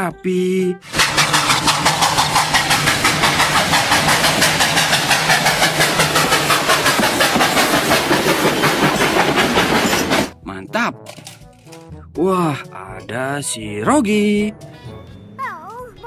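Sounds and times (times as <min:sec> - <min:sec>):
steam train chuffing: 0:00.8 - 0:10.4
steam hiss: 0:00.9 - 0:10.3.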